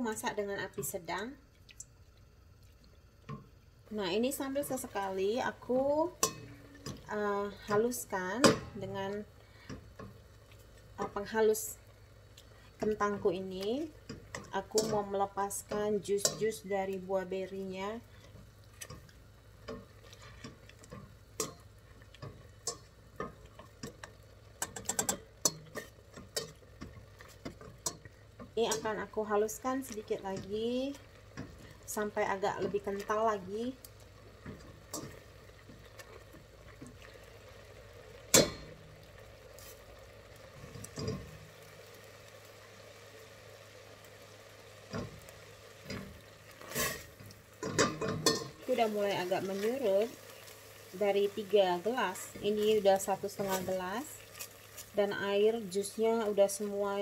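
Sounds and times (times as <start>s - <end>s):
thick filling simmering in a pot: 0.0s - 57.0s.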